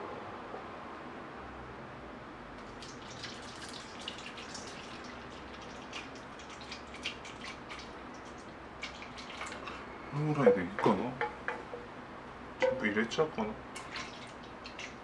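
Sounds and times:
water pouring into metal bowl: 2.7s - 9.8s, 13.8s - 15.0s.

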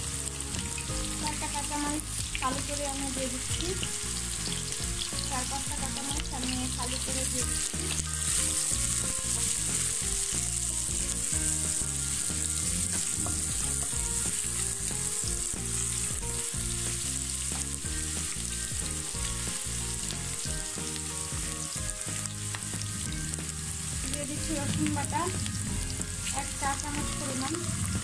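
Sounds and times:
onions sizzling in hot oil: 0.0s - 28.0s.

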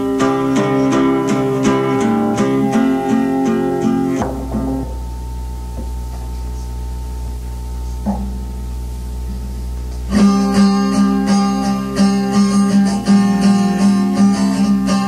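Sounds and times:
guitar chords strummed: 0.0s - 15.0s
plucked guitar note: 0.0s - 15.0s
low hum: 3.8s - 11.6s.

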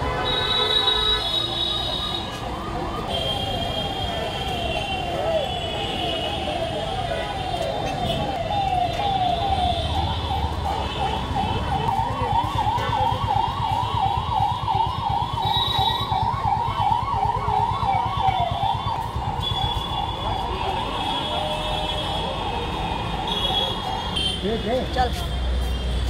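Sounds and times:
low rumble of street noise: 0.0s - 26.0s
electronic siren yelping: 6.3s - 20.6s.

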